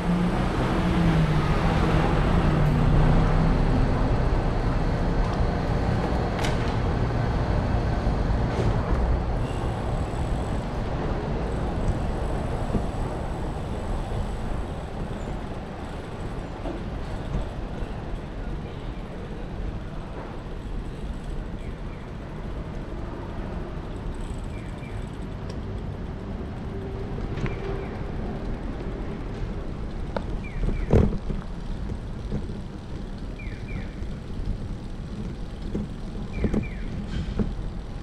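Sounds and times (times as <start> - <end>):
vehicle rumbling past: 0.0 - 16.3
city street noise: 0.0 - 38.0.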